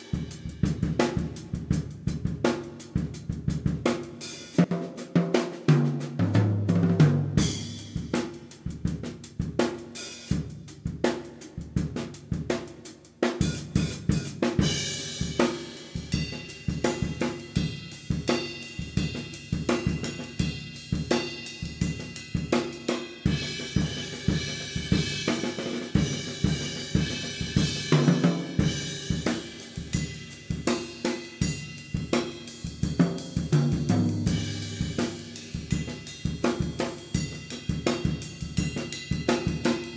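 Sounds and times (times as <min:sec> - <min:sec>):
drum kit beat: 0:00.0 - 0:39.9.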